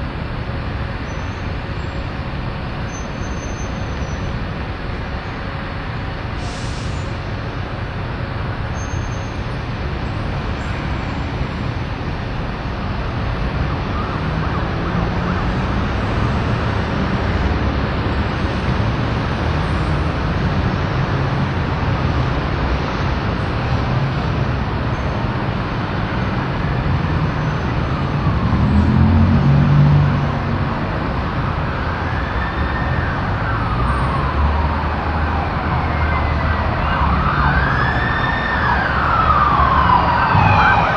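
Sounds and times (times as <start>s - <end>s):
traffic rumble: 0.0s - 40.9s
siren wailing: 31.6s - 40.9s.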